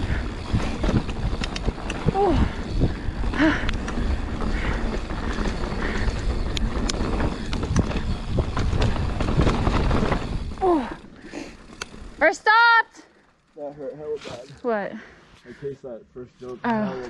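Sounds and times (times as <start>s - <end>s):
wind buffeting microphone: 0.0s - 11.0s
tyres rumbling on dirt: 0.0s - 12.4s
bike rattling clicks and knocks: 0.0s - 14.7s.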